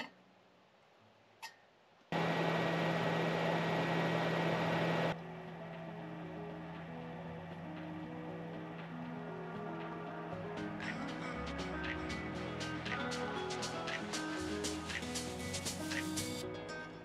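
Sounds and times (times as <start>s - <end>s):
steady hiss with low hum: 0.0s - 16.4s
quiet background music: 5.1s - 17.0s.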